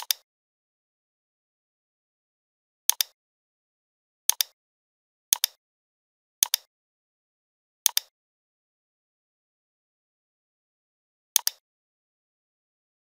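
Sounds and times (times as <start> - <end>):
computer mouse clicking: 0.0 - 0.2, 2.9 - 3.2, 4.3 - 4.6, 5.4 - 5.6, 6.4 - 6.7, 7.9 - 8.1, 11.4 - 11.6.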